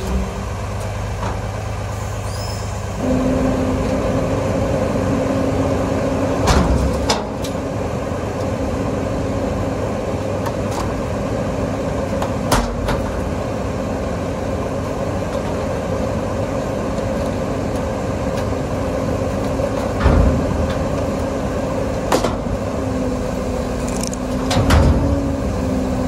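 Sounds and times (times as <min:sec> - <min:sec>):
diesel truck engine running: 0:00.0 - 0:26.0
heavy knocks of dumpster: 0:06.4 - 0:07.4, 0:19.8 - 0:21.4, 0:24.4 - 0:25.4.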